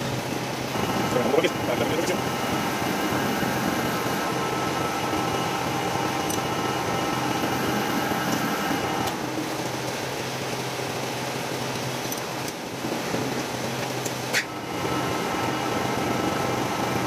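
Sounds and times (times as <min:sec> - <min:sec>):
metal lathe whining: 0:00.7 - 0:09.4, 0:14.4 - 0:17.0.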